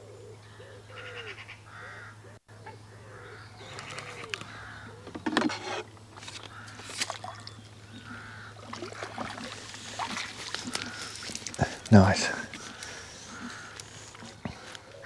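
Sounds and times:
crow cawing: 0:00.6 - 0:02.3, 0:02.9 - 0:05.1, 0:06.4 - 0:08.8, 0:10.6 - 0:15.0
fish splashing at water surface: 0:06.5 - 0:07.6, 0:08.6 - 0:11.6.

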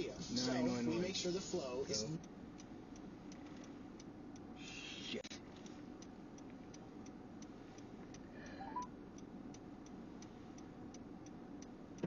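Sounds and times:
car indicator ticking: 0:02.2 - 0:04.6
short rising electronic beep: 0:08.5 - 0:08.9.

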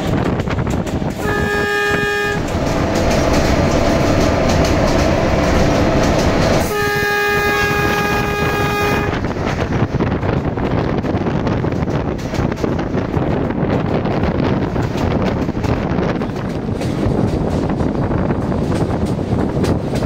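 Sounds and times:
train running on rails: 0:00.0 - 0:20.0
locomotive horn blasts: 0:01.2 - 0:02.6, 0:06.6 - 0:09.3.

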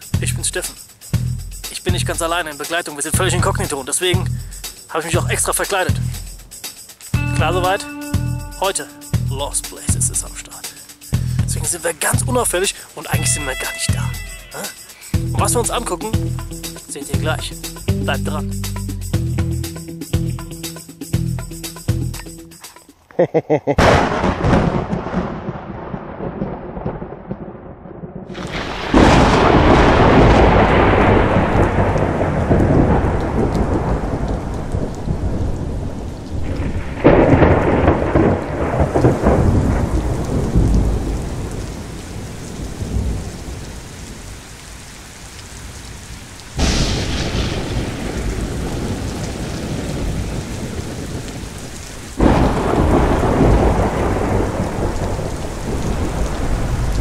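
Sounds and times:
rain falling: 0:00.0 - 0:23.0, 0:23.8 - 0:57.0
low rolling thunder: 0:23.8 - 0:45.1, 0:45.8 - 0:57.0.

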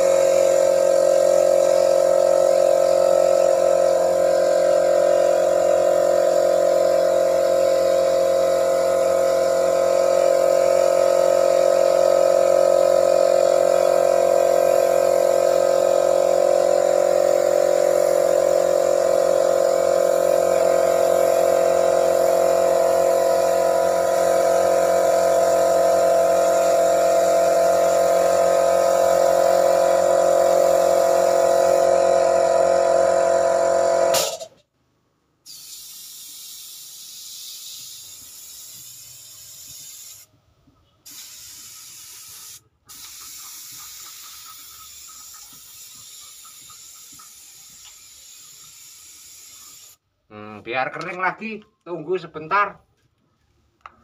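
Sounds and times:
spray gun hissing: 0:00.0 - 0:32.0, 0:35.5 - 0:40.3, 0:41.1 - 0:50.0
air compressor humming: 0:00.0 - 0:34.6, 0:35.5 - 0:40.3, 0:41.0 - 0:50.1.

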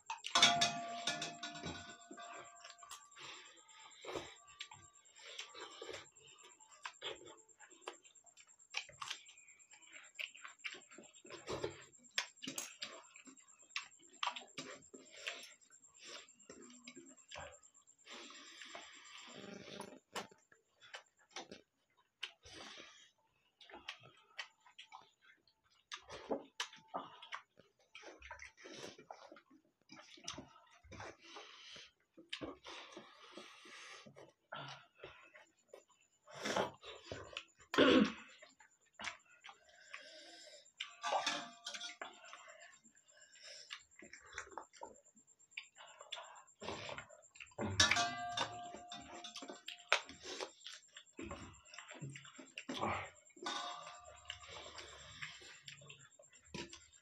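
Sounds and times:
hands mixing rice on plates: 0:00.0 - 0:17.5
eating sounds: 0:00.0 - 0:57.0
clicks on steel plates: 0:00.1 - 0:03.0, 0:41.0 - 0:42.0, 0:47.6 - 0:49.7, 0:53.4 - 0:54.5.

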